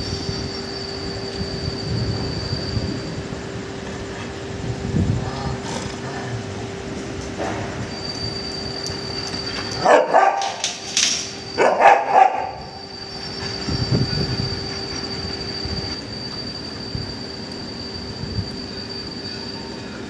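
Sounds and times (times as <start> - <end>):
dogs barking: 9.8 - 10.8, 11.6 - 12.7.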